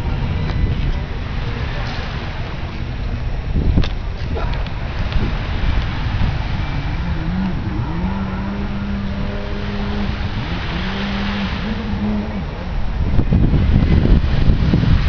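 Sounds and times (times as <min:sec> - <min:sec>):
steady rushing noise: 0:00.0 - 0:15.0
motor engine revving: 0:04.4 - 0:15.0.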